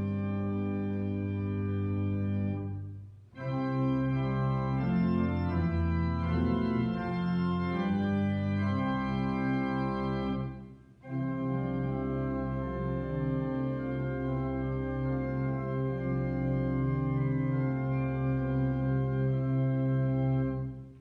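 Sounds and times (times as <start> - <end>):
organ playing held chords: 0.0 - 21.0.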